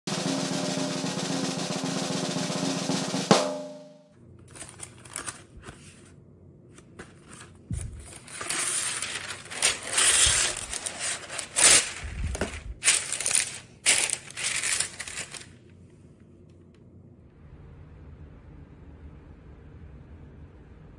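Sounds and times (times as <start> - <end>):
drum roll music sting: 0.1 - 4.0
parchment paper crinkling: 4.4 - 15.8.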